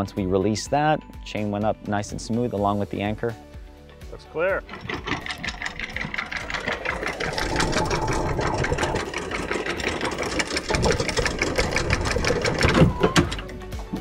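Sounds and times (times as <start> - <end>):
anchor chain clattering: 4.4 - 13.7
windlass motor hum: 4.6 - 13.7.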